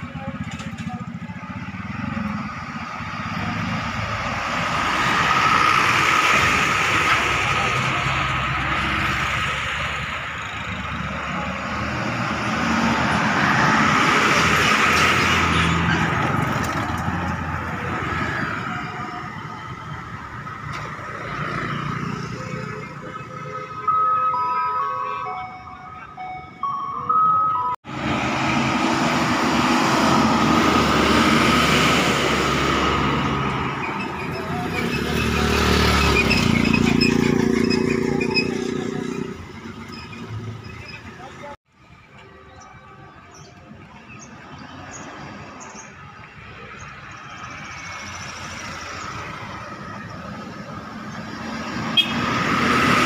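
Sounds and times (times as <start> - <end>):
motorcycle engine: 0.0 - 4.1
bus passing by: 0.0 - 53.0.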